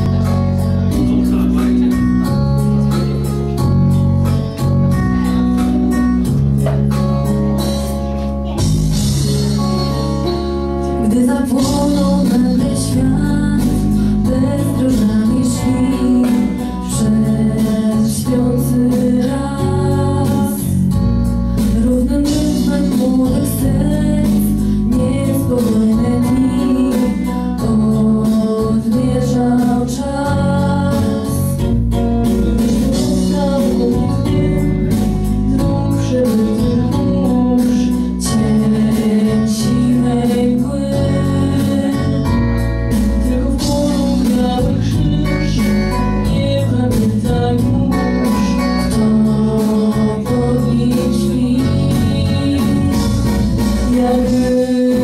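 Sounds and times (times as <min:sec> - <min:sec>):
instrumental backing with beat: 0:00.0 - 0:55.0
women singing: 0:11.0 - 0:20.8, 0:21.7 - 0:31.6, 0:32.7 - 0:55.0.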